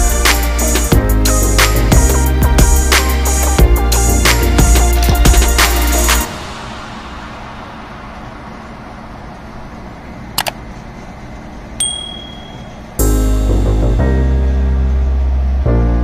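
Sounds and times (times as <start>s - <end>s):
background music: 0.0s - 7.2s, 13.0s - 16.0s
hum: 0.0s - 16.0s
quick clicks: 10.4s - 10.6s
short high ding: 11.8s - 13.0s.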